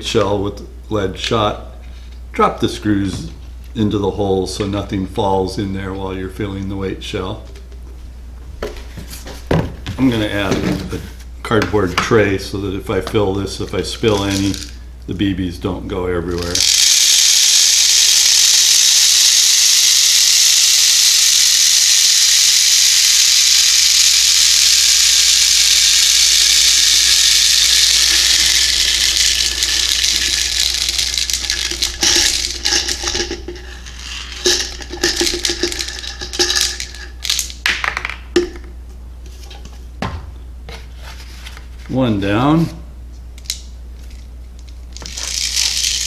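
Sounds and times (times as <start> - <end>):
metal pellets pouring into plastic: 16.5 - 37.6, 45.0 - 46.0.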